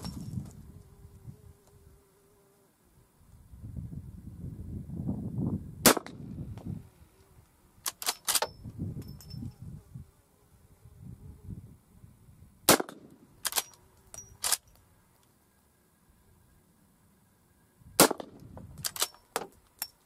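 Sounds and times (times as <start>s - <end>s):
rifle shots: 5.8s - 6.2s, 12.7s - 13.7s, 18.0s - 19.1s.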